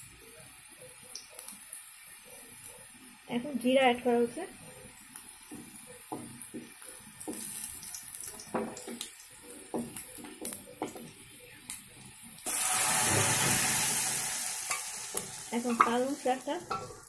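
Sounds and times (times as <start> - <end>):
onions frying gently in oil: 0.0 - 17.0
loud sizzling rush: 12.3 - 17.0.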